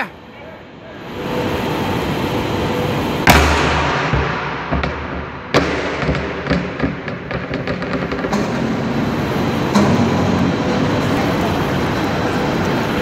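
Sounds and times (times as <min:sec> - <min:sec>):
pipe thudding on concrete floor: 0:03.3 - 0:09.0
pipe bouncing knocks: 0:03.3 - 0:09.1, 0:09.7 - 0:10.8.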